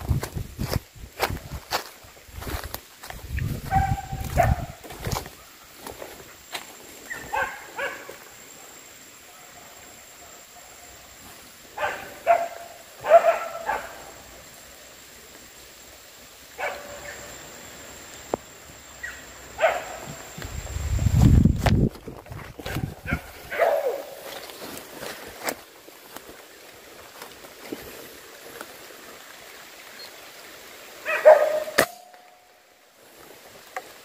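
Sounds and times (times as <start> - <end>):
animal barking calls: 3.6 - 5.5, 7.1 - 8.3, 11.7 - 14.3, 16.6 - 17.3, 19.0 - 20.3, 22.6 - 24.3, 31.0 - 32.4.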